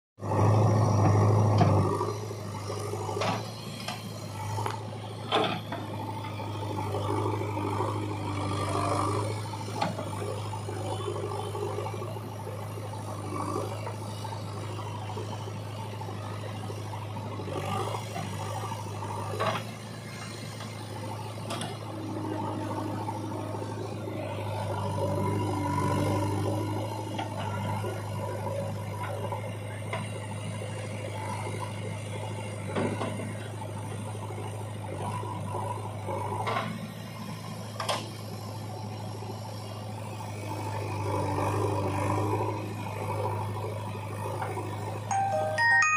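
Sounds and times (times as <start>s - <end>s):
diesel engine running under load: 0.2s - 45.9s
mid-pitched machine whine: 45.1s - 45.9s.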